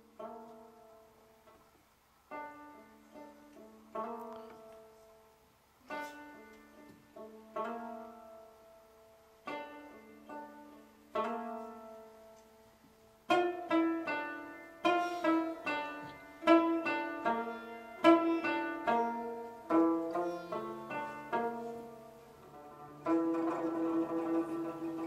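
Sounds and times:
plucked string melody: 0.0s - 1.7s, 2.3s - 25.0s.

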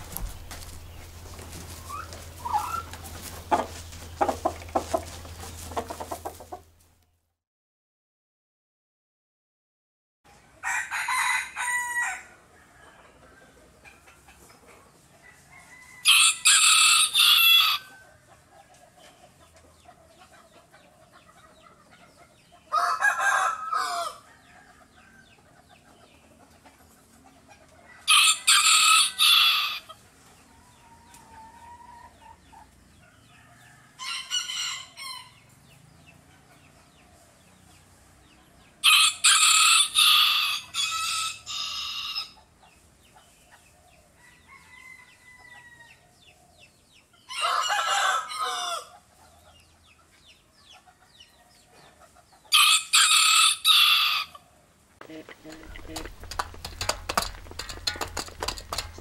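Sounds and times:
faint clucking: 2.5s - 6.7s, 55.0s - 59.0s
rooster crowing: 10.6s - 13.1s, 15.2s - 18.0s, 22.7s - 25.2s, 28.0s - 29.9s, 33.4s - 35.3s, 38.8s - 42.4s, 44.2s - 46.0s, 47.3s - 48.9s, 52.5s - 54.4s.

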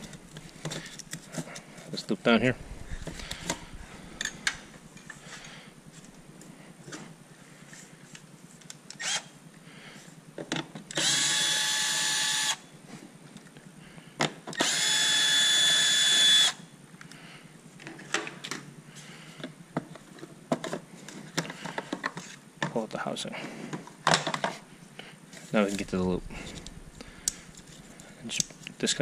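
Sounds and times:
clicks and knocks of handling parts: 0.0s - 2.0s, 19.4s - 22.8s, 23.7s - 24.6s
cordless drill running: 9.0s - 9.3s, 10.9s - 12.6s, 14.6s - 16.6s.

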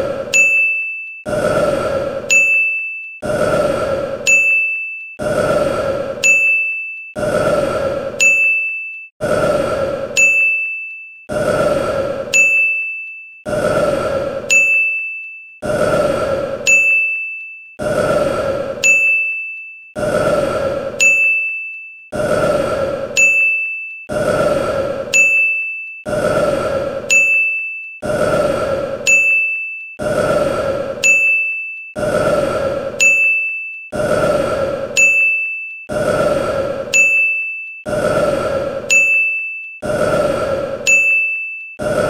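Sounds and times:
bright bell-like ding: 8.2s - 9.0s, 10.2s - 10.8s.

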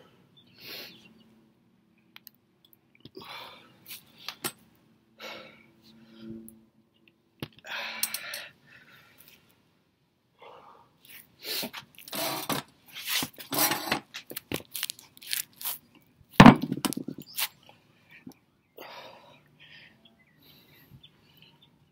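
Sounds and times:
camera handling scraping and rustling: 11.7s - 15.8s.

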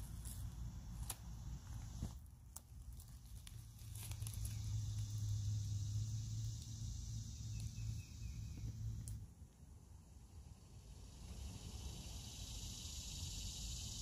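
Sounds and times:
steady high hiss: 3.4s - 14.0s.

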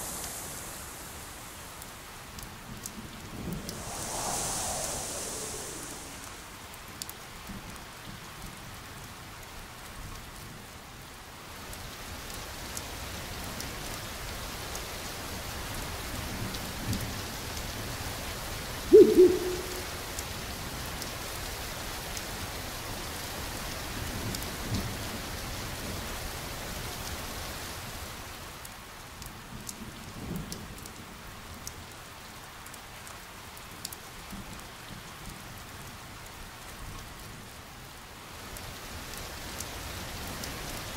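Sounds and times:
steady rain hiss: 0.0s - 40.9s
low falling tone: 3.6s - 6.7s, 18.9s - 20.0s.

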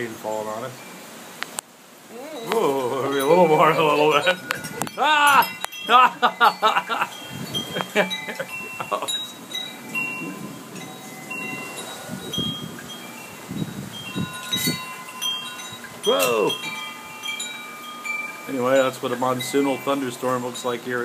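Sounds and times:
wind chimes ringing: 0.0s - 1.2s, 2.1s - 21.0s
storm wind: 4.2s - 15.1s.

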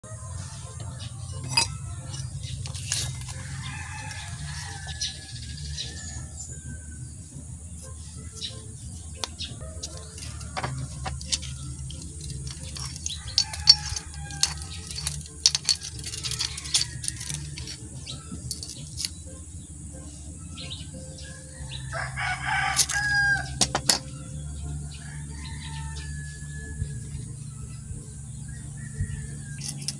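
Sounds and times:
metal pieces clinking: 0.8s - 5.1s, 9.2s - 19.2s, 22.7s - 24.1s, 29.6s - 29.9s
rooster crowing: 3.2s - 7.0s, 13.0s - 15.1s, 21.5s - 23.6s, 25.0s - 27.1s.

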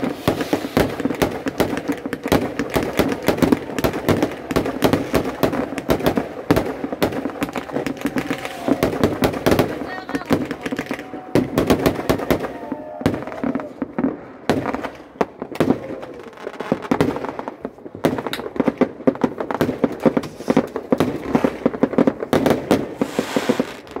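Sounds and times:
fireworks crackling bangs: 0.0s - 24.0s.

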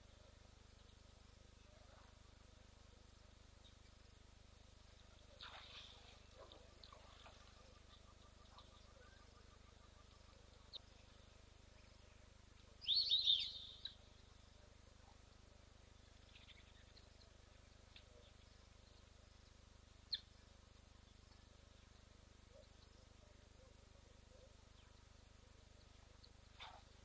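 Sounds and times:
outdoor background: 0.0s - 27.0s
bird chirping: 12.8s - 14.7s, 20.1s - 20.4s.

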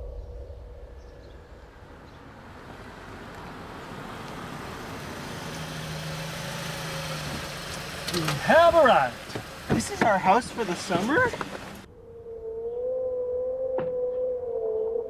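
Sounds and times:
low drone: 0.0s - 3.8s
car approaching: 0.0s - 11.9s.

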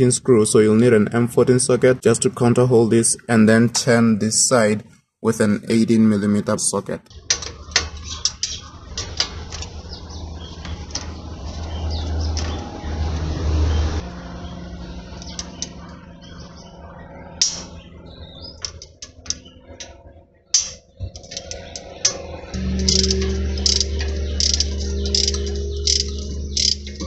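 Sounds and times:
low rumble: 8.7s - 27.0s
ratchet clicking: 20.6s - 27.0s.

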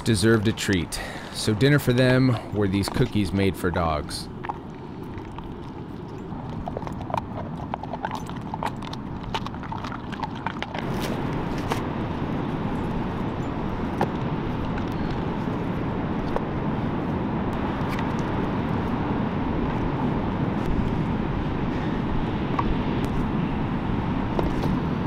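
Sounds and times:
wind and surf: 0.0s - 25.0s
dog crunching a cookie: 2.0s - 12.2s.

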